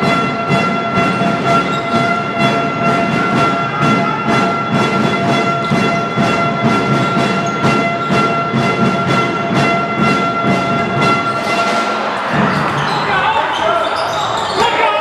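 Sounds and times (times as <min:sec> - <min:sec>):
bass drums beating: 0:00.0 - 0:11.5
crowd noise: 0:00.0 - 0:15.0.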